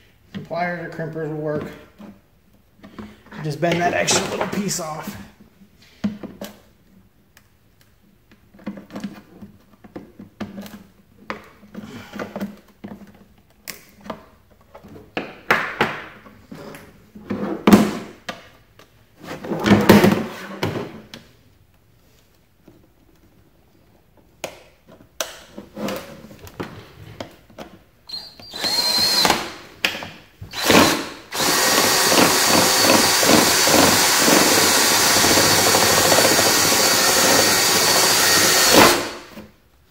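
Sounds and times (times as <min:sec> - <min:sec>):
cordless drill boring plastic: 0:28.4 - 0:29.5, 0:30.5 - 0:39.4.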